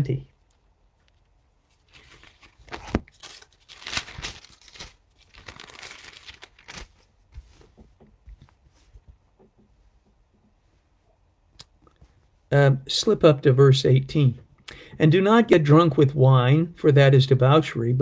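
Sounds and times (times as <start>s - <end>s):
paper pages rustling: 0.5s - 9.1s
faint taps: 7.4s - 10.6s.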